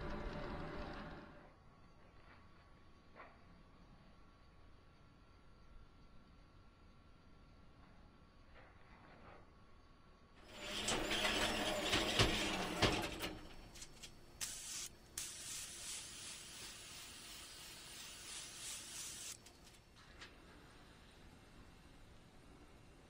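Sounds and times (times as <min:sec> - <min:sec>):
aerosol spray hiss: 0:14.4 - 0:19.4.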